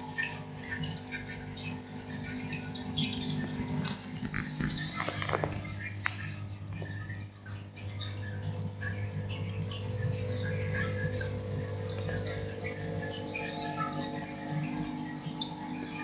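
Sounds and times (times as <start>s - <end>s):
aquarium pump humming: 0.0s - 16.0s
water trickling and dripping: 0.0s - 16.0s.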